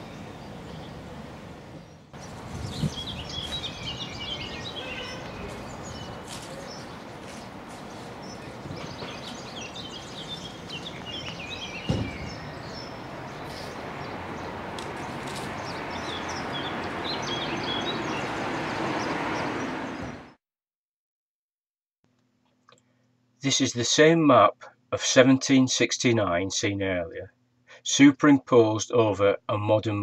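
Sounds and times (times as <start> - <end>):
small birds chirping: 0.0 - 20.2
traffic noise: 0.0 - 20.4
low thump: 11.8 - 12.4.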